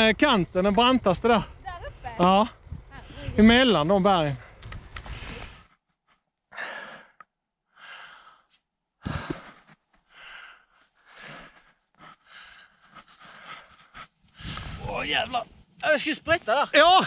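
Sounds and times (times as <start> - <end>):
person breathing hard: 6.5 - 14.9.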